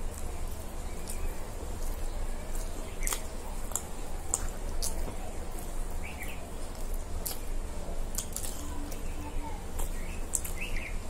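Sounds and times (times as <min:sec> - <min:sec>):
people chewing: 0:00.0 - 0:11.0
steady low hum: 0:00.0 - 0:11.0
wet mouth smacks and clicks: 0:03.0 - 0:05.0.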